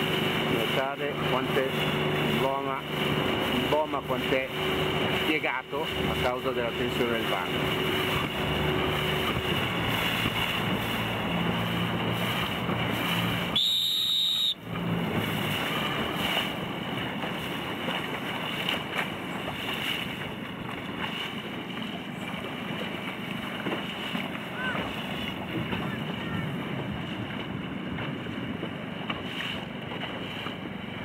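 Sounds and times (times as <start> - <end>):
water splashing around boat: 0.0 - 31.0
wind buffeting microphone: 7.4 - 13.5, 14.7 - 31.0
short high beep: 13.6 - 14.6.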